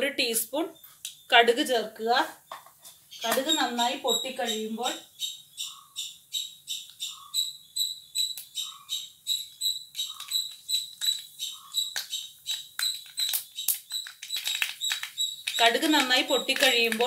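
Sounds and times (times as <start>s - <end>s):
seeds popping in hot oil: 3.2s - 4.5s, 9.3s - 17.0s.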